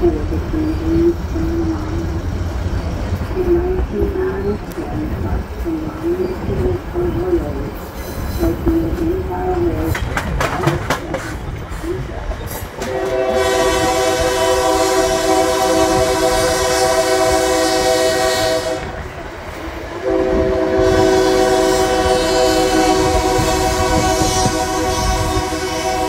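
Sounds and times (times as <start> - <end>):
train rumble: 0.0 - 26.0
locomotive air horn: 12.8 - 19.0, 20.0 - 26.0.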